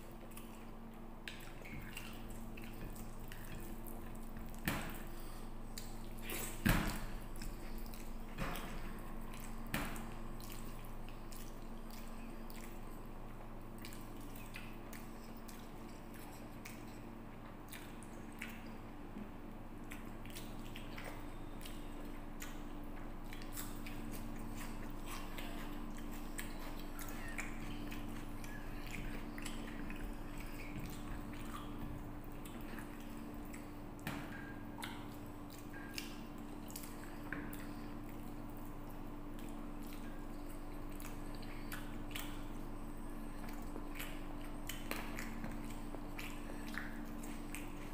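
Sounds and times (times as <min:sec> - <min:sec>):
chewing: 0:00.0 - 0:47.9
steady low hum: 0:00.0 - 0:47.9.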